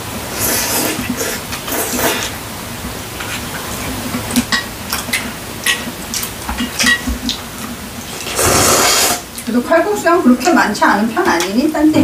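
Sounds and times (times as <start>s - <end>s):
loud noodle slurp: 0.3s - 2.4s, 8.2s - 9.2s.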